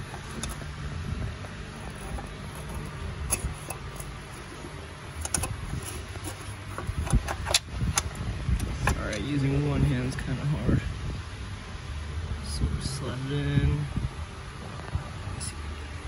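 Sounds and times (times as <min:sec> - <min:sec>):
rustling handling noise: 0:00.0 - 0:09.4.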